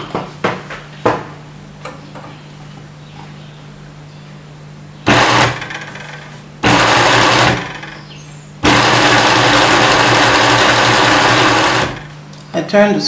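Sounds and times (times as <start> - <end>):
sewing machine stitching: 5.1 - 5.9, 6.6 - 7.8, 8.6 - 12.1.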